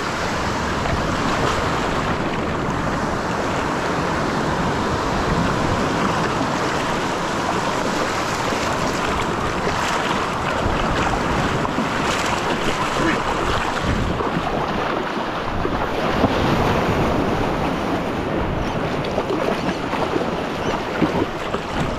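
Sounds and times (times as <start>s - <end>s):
surf breaking: 0.0s - 21.9s
wind on microphone: 0.0s - 21.9s.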